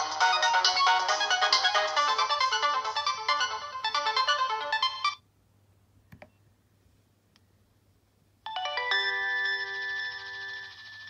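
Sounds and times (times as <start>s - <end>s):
electronic ringtone melody: 0.0s - 5.2s, 8.5s - 11.0s
chime ringtone: 8.5s - 11.0s.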